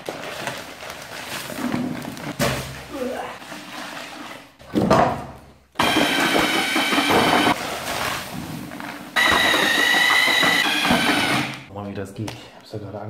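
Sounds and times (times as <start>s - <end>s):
electric drill mixing paddle whine: 5.8s - 7.6s, 9.2s - 11.7s.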